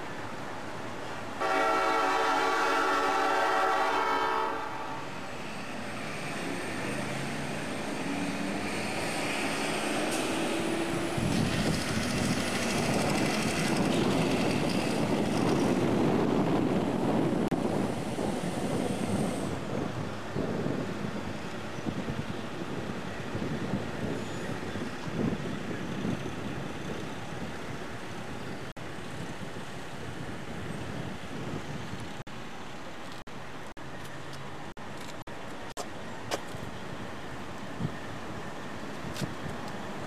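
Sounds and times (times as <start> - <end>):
fire truck air horn chord: 1.4 - 5.0
diesel engine pulling away: 5.4 - 15.1.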